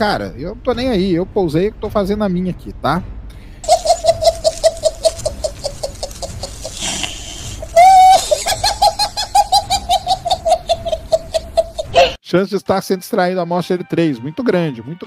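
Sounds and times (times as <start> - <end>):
man laughing hysterically: 3.6 - 12.2
wheezing breath: 6.7 - 7.7.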